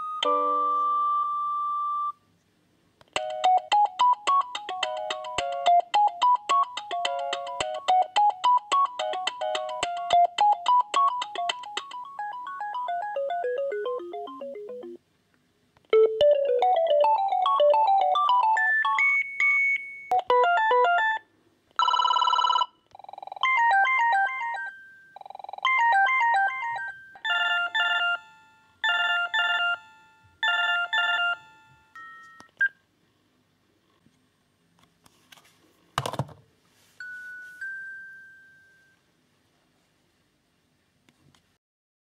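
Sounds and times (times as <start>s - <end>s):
electronic ringtone melodies: 0.0s - 2.1s, 3.2s - 15.0s, 16.0s - 32.5s, 37.0s - 39.0s.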